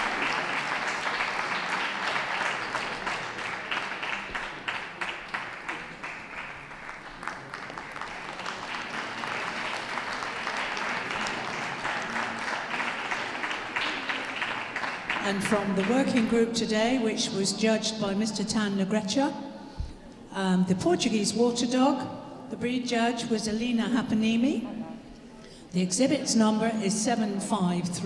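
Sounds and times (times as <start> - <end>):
audience applauding: 0.0 - 16.2.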